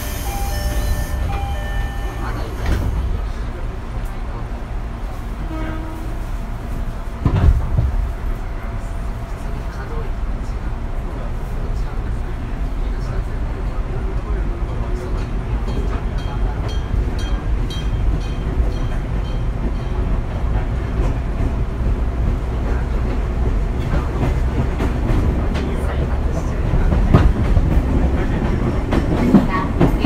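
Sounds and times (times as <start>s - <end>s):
rail-joint clatter: 0.7s - 4.2s, 14.7s - 30.0s.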